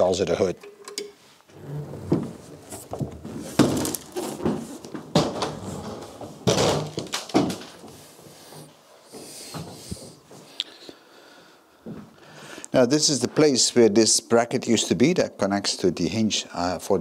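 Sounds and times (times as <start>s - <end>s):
rustling scrapes: 1.2s - 6.4s
knocks and bumps: 1.6s - 7.8s.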